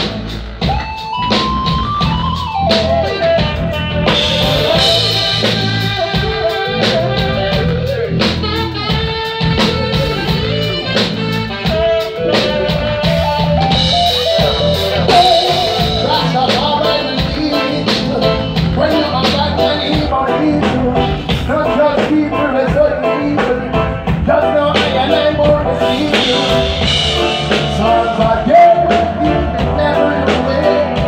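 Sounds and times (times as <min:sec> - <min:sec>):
drum kit beat: 0:00.0 - 0:31.0
guitar: 0:00.0 - 0:31.0
live reggae band playing: 0:00.0 - 0:31.0.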